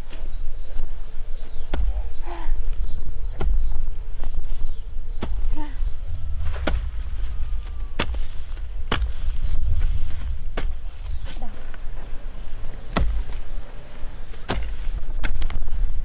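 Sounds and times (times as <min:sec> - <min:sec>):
insect trilling: 0:00.0 - 0:16.0
hoe chopping into dry soil: 0:01.6 - 0:02.4, 0:03.2 - 0:04.4, 0:05.1 - 0:05.6, 0:06.4 - 0:11.5, 0:12.5 - 0:15.8
low rumble: 0:03.0 - 0:15.0.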